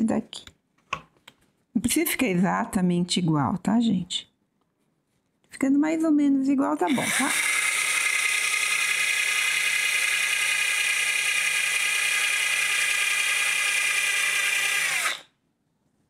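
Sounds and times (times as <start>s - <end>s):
cordless drill motor whine: 6.9s - 15.3s.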